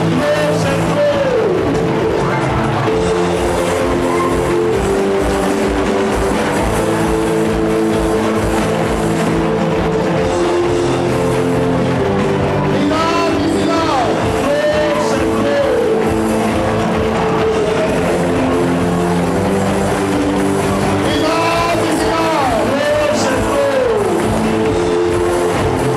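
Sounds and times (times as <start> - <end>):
worship music with steady beat: 0.0 - 25.9
congregation praying aloud: 12.6 - 18.2, 21.0 - 24.6.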